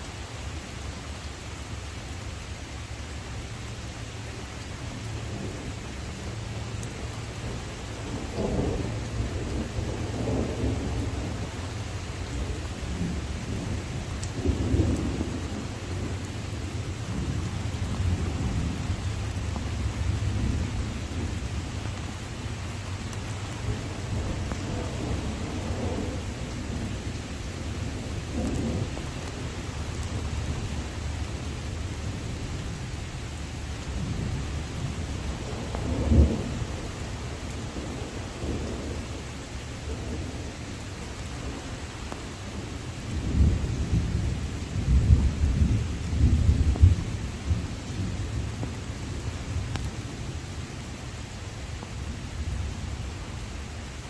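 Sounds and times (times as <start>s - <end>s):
steady rain: 0.0s - 54.0s
thunder rolling: 7.4s - 11.8s, 23.6s - 32.5s, 33.9s - 39.1s.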